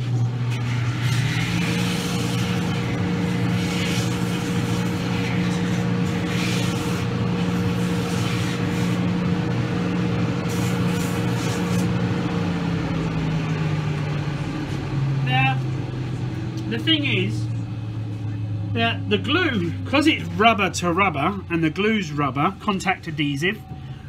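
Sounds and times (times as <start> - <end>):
finishing machine humming: 0.0 - 24.0
rubber rasping on sanding wheel: 0.6 - 9.1, 10.4 - 12.0.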